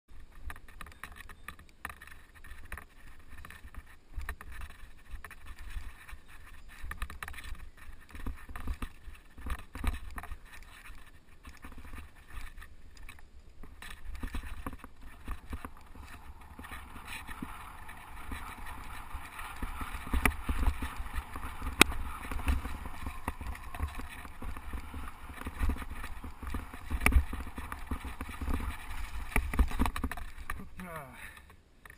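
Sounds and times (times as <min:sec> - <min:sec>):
bike tyres on dirt: 0:00.1 - 0:31.9
wind rumbling on microphone: 0:02.7 - 0:30.8
bike rattling and knocking: 0:06.7 - 0:30.7.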